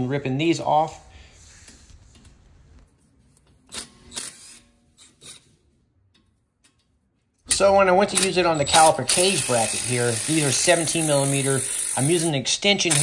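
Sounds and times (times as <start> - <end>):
impact wrench clicks and knocks: 6.1 - 13.0.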